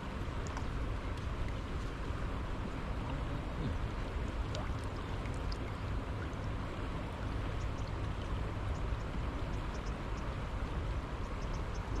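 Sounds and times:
wind rumbling on microphone: 0.0 - 12.0
faint light ticks: 0.4 - 1.9, 7.5 - 10.4, 11.2 - 12.0.

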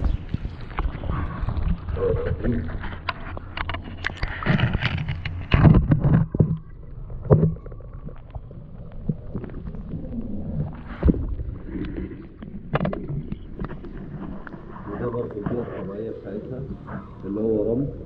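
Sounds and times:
muffled underwater gurgling: 0.0 - 18.0.

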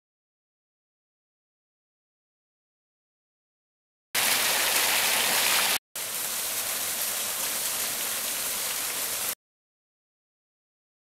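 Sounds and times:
water splashing over rocks: 4.2 - 9.4.

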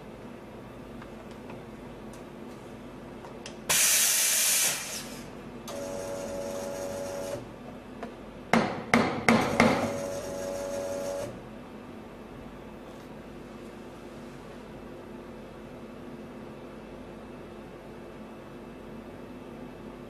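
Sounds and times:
machine humming: 0.0 - 8.2, 9.2 - 12.6.

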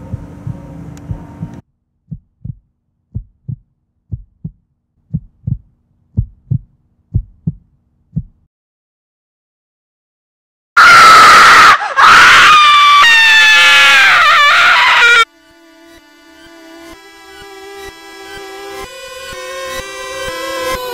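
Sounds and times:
dense rumbling background: 0.0 - 8.2
heartbeat thumps: 0.0 - 8.5.

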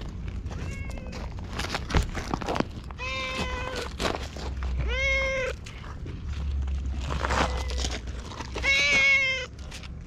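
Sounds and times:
footsteps on gravel: 0.0 - 10.0
cat meowing: 0.6 - 1.2, 3.0 - 4.0, 4.7 - 5.8, 8.5 - 9.5.

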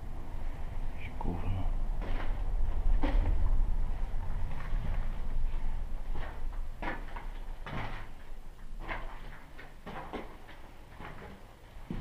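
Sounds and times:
steady low rumble: 0.0 - 9.6
footsteps on debris: 4.5 - 12.0.

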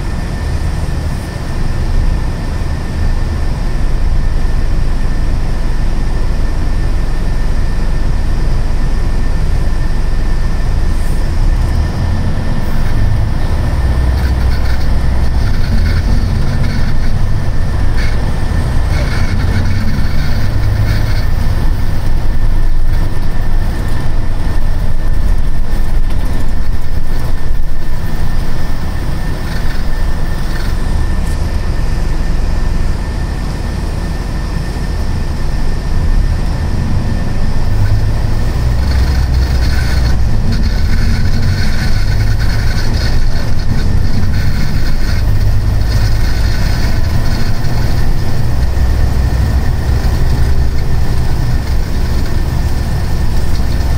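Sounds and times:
diesel engine drone: 0.0 - 53.9
road rumble: 0.0 - 53.9
thin constant whine: 0.0 - 53.9.

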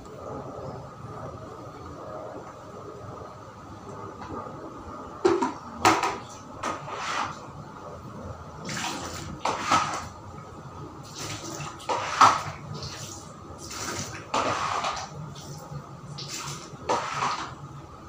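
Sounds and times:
wet mop slapping tiled floor: 5.3 - 7.4, 8.6 - 10.2, 11.1 - 17.6.

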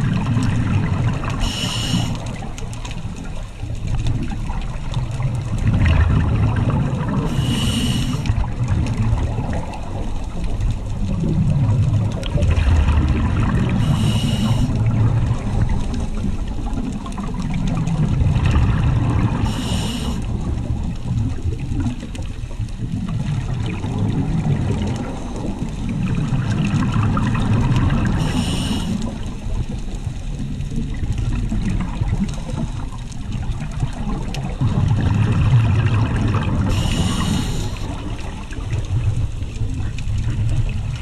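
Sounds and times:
rumble of exhaled bubbles: 0.0 - 41.0
hiss of inhaling through regulator: 1.2 - 2.5, 7.2 - 8.5, 13.7 - 14.9, 19.3 - 20.4, 28.0 - 29.5, 36.6 - 38.3.

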